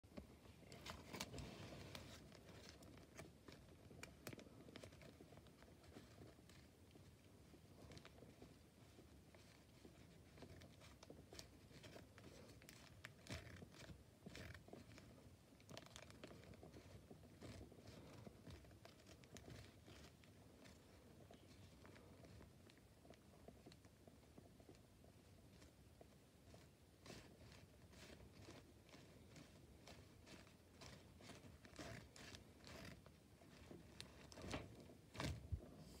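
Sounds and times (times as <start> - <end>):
paper crinkling and tapping: 0.1 - 35.6
paper rustling and scraping: 0.6 - 6.7, 26.6 - 35.7.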